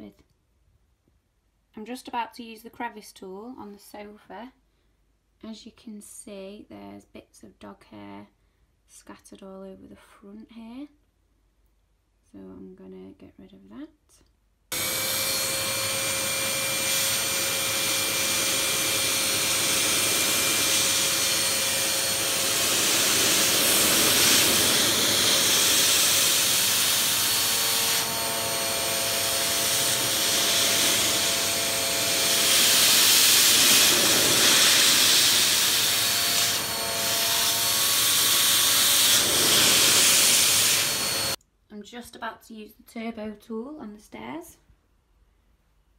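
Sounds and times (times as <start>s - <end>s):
vacuum cleaner running: 14.7s - 41.4s.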